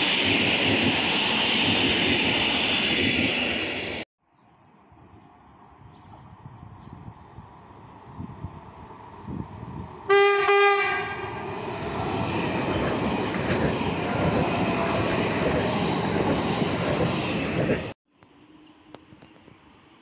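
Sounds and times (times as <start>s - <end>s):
train wheels rumbling on rails: 0.0s - 4.0s, 10.7s - 18.0s
train horn: 10.1s - 11.4s.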